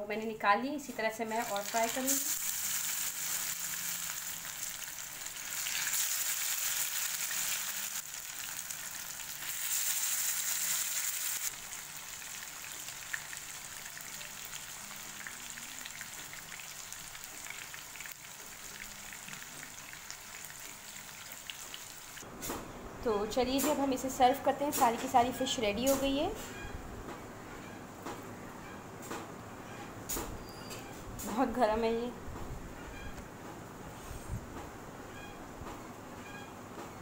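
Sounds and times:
fish frying in hot oil: 1.3s - 22.2s.

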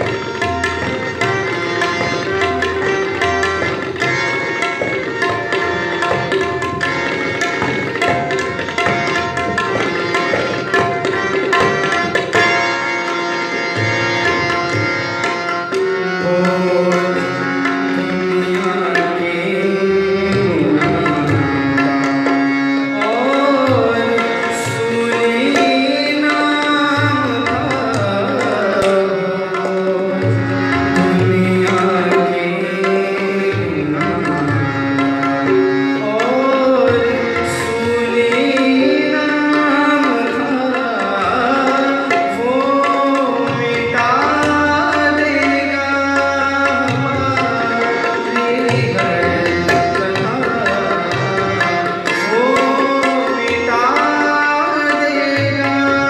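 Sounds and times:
held melodic accompaniment: 0.0s - 56.0s
tabla drumming: 0.0s - 56.0s.

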